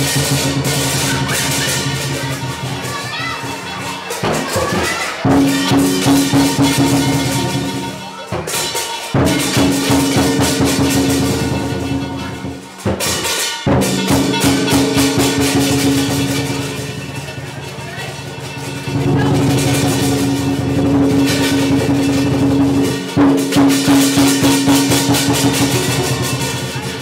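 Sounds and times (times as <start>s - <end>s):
drum and cymbals fast beat: 0.0s - 27.0s.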